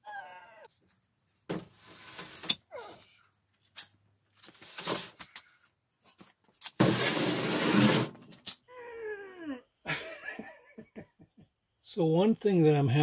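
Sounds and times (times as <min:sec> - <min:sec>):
metal frame scraping on concrete: 0:06.8 - 0:08.4.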